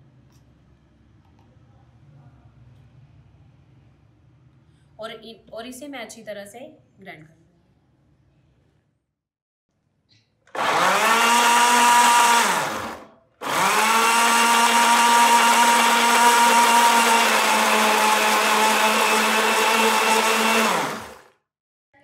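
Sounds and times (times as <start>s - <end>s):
blender motor grinding: 10.5s - 21.4s.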